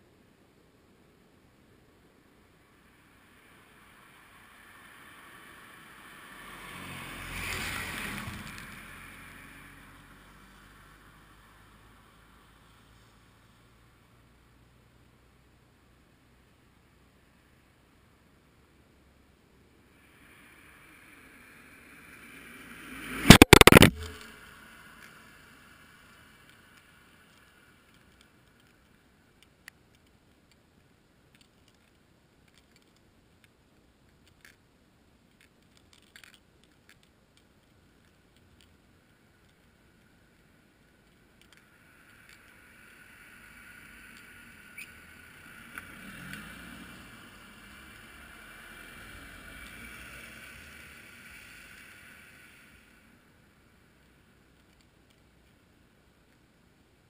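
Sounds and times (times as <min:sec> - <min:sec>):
faint rushing noise: 0:00.0 - 0:57.0
car passing close by: 0:02.8 - 0:12.9, 0:20.0 - 0:27.7, 0:43.3 - 0:53.2
faint clicks: 0:20.0 - 0:56.7.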